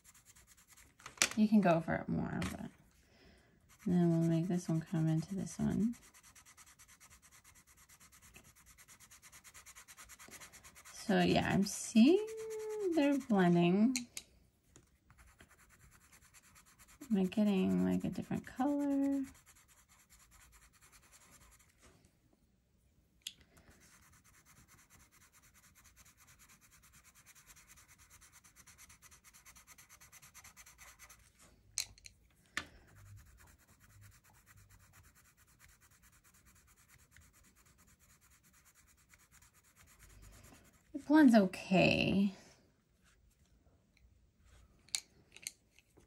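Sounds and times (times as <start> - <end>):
pencil scratching on paper: 0.0 - 1.0, 3.6 - 13.6, 15.1 - 21.8, 23.6 - 31.4, 32.8 - 41.3.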